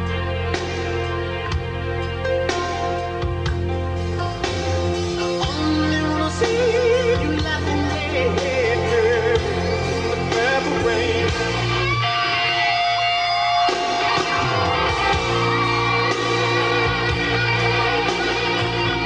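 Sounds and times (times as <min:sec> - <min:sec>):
guitar: 0:00.0 - 0:19.0
person singing: 0:05.2 - 0:19.0.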